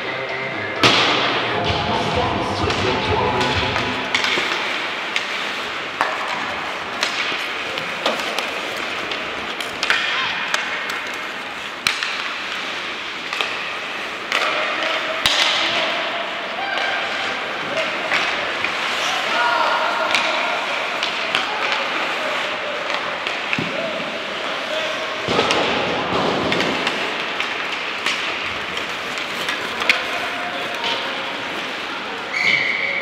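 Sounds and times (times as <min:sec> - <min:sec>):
indistinct voices: 0:00.0 - 0:05.0
hockey sticks and puck clacking: 0:00.0 - 0:33.0.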